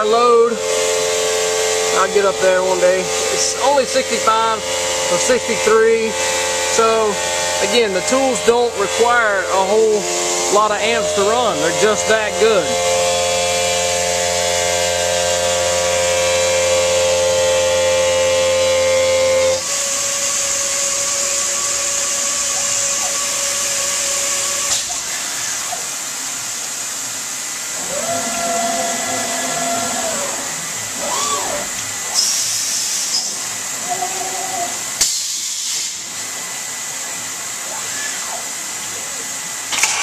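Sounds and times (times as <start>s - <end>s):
stone router grinding: 0.2s - 24.2s
water spray hiss: 19.6s - 40.0s.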